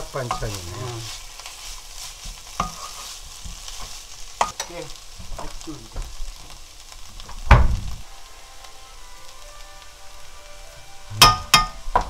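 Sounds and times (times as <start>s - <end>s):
spatula scraping frying pan: 0.0s - 5.2s.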